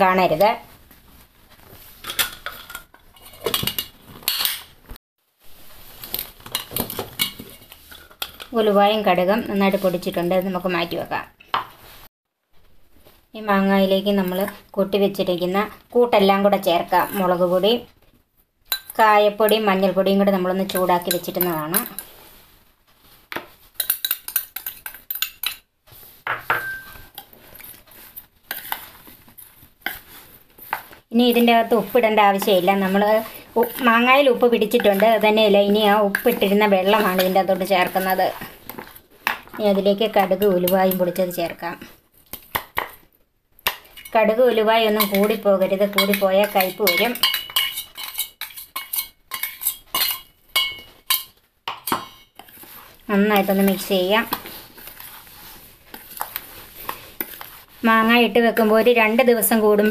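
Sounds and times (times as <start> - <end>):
spoon tapping: 26.3 - 27.0
metal spoon scraping glass bowl: 44.9 - 52.7.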